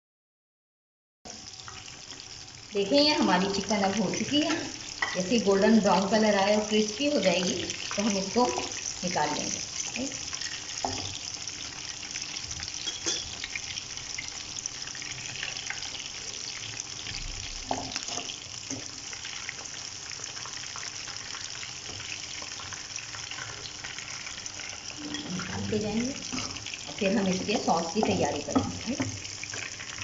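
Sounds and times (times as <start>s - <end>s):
chicken sizzling in hot oil: 1.3s - 30.0s
metal tongs knocking pan: 12.8s - 13.4s, 25.1s - 29.2s.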